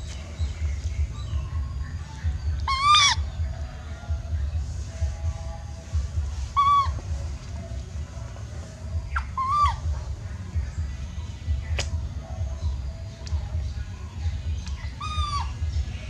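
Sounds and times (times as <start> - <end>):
low steady rumble: 0.0 - 16.0
baby monkey crying: 2.3 - 3.4, 6.5 - 7.1, 9.1 - 9.9, 14.7 - 15.7.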